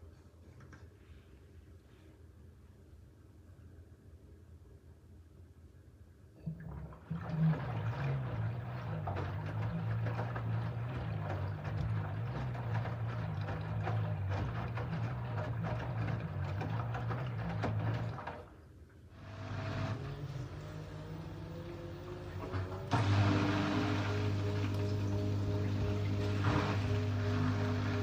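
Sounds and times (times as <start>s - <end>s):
water sloshing in drum: 6.4s - 18.7s, 19.4s - 28.0s
washing machine motor hum: 6.4s - 28.0s.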